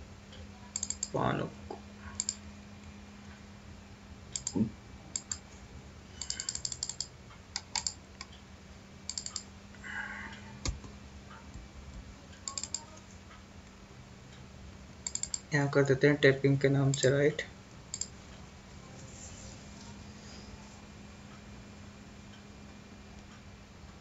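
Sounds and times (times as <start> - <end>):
faint steady hum: 0.0 - 24.0
mouse and keyboard clicks: 12.4 - 12.9.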